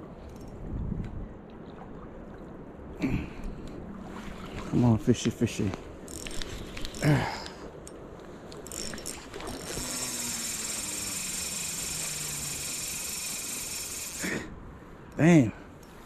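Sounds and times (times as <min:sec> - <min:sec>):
fishing reel whirring: 0:06.0 - 0:07.1, 0:07.8 - 0:14.4.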